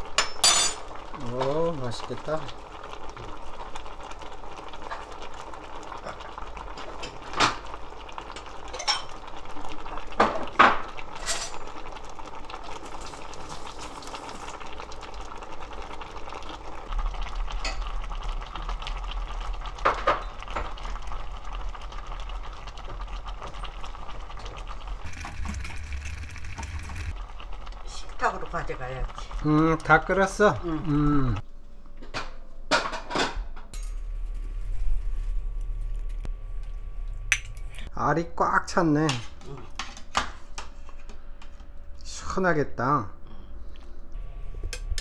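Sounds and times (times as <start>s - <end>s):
stew bubbling at a boil: 0.8s - 31.4s.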